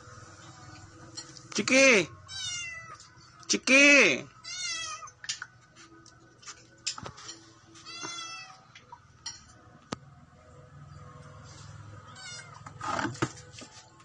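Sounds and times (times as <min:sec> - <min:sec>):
kitten meowing: 0:02.3 - 0:03.0.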